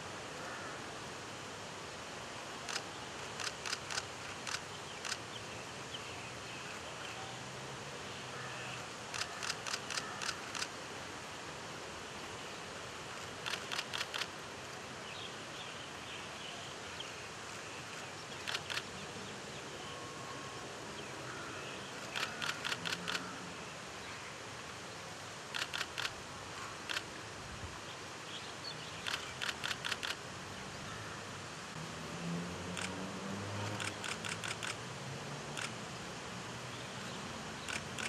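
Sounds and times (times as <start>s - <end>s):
background hiss: 0.0s - 38.0s
camera shutter clicks: 3.4s - 5.2s, 9.1s - 10.7s, 13.4s - 14.3s, 18.4s - 18.9s, 22.0s - 23.3s, 25.5s - 26.2s, 26.9s - 27.1s, 29.0s - 30.2s, 33.8s - 34.8s, 35.6s - 35.8s, 37.6s - 38.0s.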